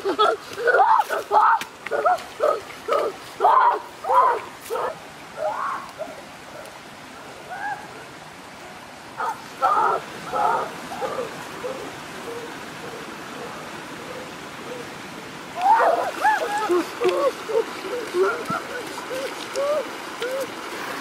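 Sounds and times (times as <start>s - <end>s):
rocky stream rushing: 0.0s - 21.0s
children calling and shouting: 15.6s - 20.5s.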